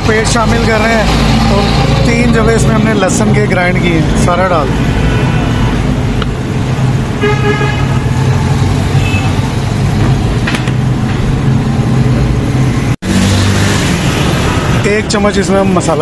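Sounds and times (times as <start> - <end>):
traffic engine hum: 0.0 - 16.0
vehicle horn honking: 7.2 - 8.2, 8.9 - 9.5.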